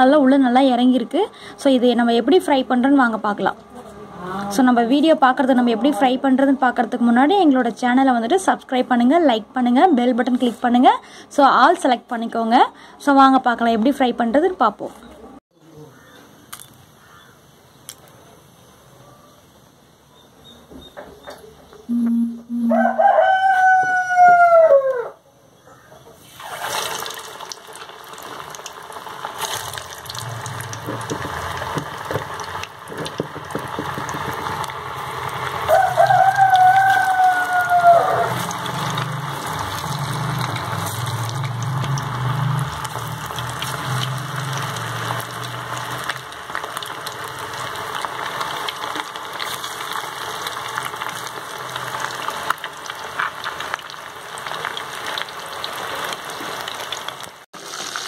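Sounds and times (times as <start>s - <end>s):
rooster crowing: 22.5s - 25.2s, 35.6s - 39.2s
fish sizzling in hot oil: 26.2s - 58.0s.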